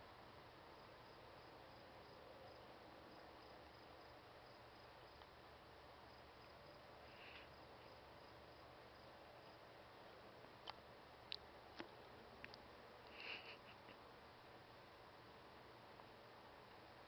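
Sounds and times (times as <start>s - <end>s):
steady hiss: 0.0s - 17.0s
cricket chirping: 0.4s - 10.0s.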